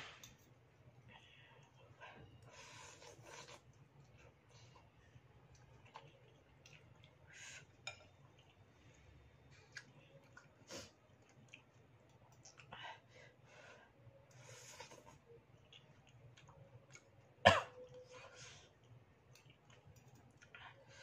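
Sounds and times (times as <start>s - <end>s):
faint low room hum: 0.0s - 21.0s
slurping and chewing noodles: 2.5s - 12.7s.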